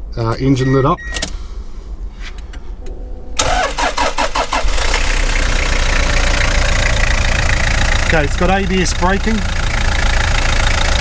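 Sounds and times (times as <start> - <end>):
diesel engine idling: 3.4 - 11.0
starter cranking engine: 3.4 - 11.0.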